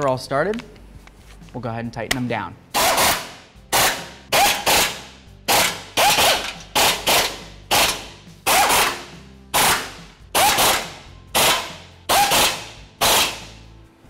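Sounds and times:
impact wrench bursts: 2.7s - 13.6s.

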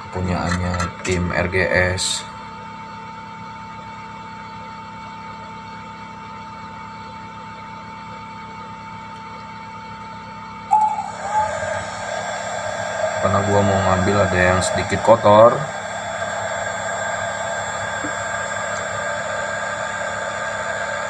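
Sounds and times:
blower fan whining: 0.0s - 21.0s
loud sound: 10.7s - 21.0s.

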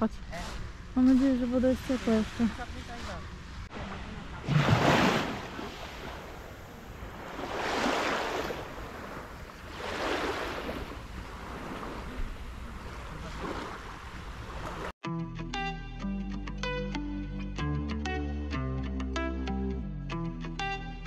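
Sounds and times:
sea waves washing onto beach: 1.0s - 14.9s
guitar music: 15.0s - 21.0s.

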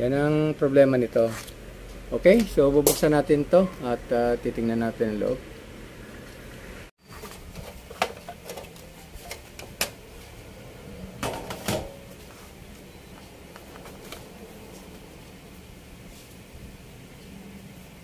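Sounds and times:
metal cover clattering: 11.2s - 12.1s.

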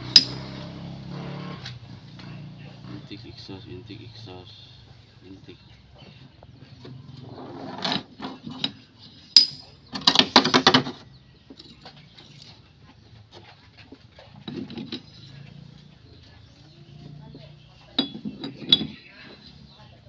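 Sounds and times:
metal rocker arms clinking and rattling: 0.0s - 0.5s, 7.2s - 12.7s, 13.3s - 15.9s, 17.8s - 19.5s
metal scrape: 7.2s - 9.6s.

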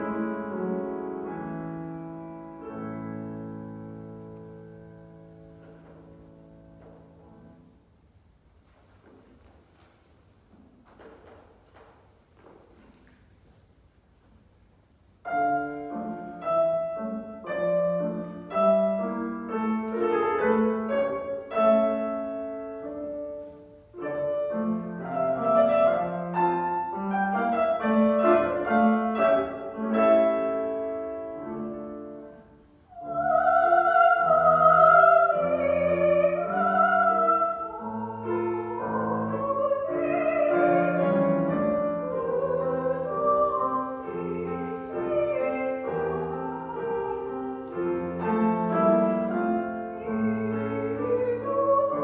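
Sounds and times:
grand piano playing: 0.0s - 8.2s, 15.2s - 52.0s
woman singing operatically: 32.7s - 47.5s, 48.7s - 52.0s.

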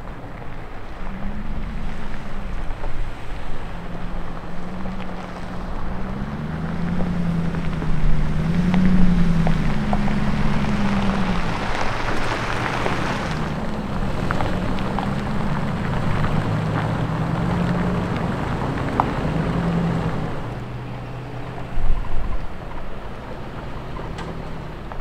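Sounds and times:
car engine at low revs: 0.0s - 25.0s
tyres ticking on rough ground: 0.0s - 25.0s.

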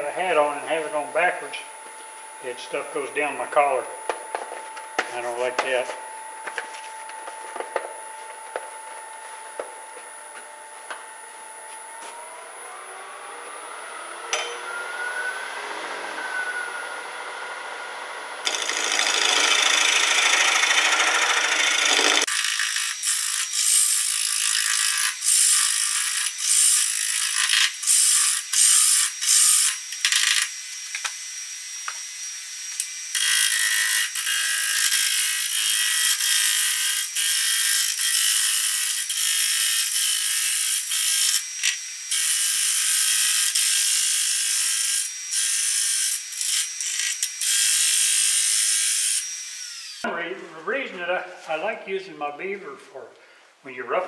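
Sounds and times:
lathe tool cutting wood: 12.0s - 50.1s.

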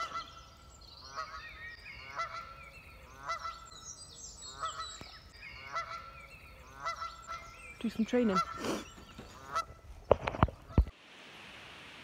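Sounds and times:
small birds chirping: 0.0s - 10.8s
goose honking: 1.1s - 3.7s, 4.5s - 4.9s, 5.6s - 7.6s, 8.2s - 9.8s.

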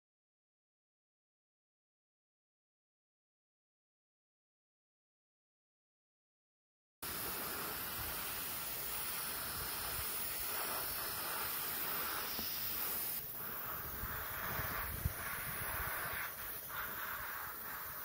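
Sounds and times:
aerosol spray can hissing: 7.0s - 18.0s.

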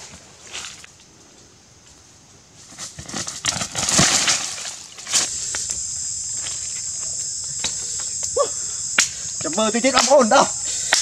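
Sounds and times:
high insect buzz: 0.4s - 11.0s.

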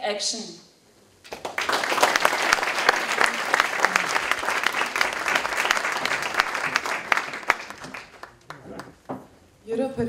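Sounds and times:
audience applauding: 1.3s - 9.0s.

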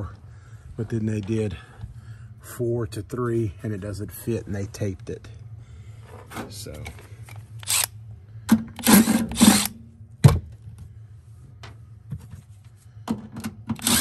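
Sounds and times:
cordless driver running: 7.6s - 7.9s, 8.8s - 9.7s, 13.8s - 14.0s.

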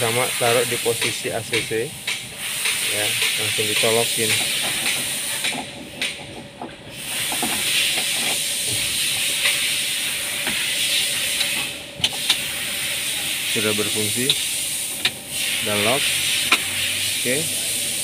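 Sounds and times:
steady hiss: 0.0s - 5.6s, 6.9s - 18.0s.

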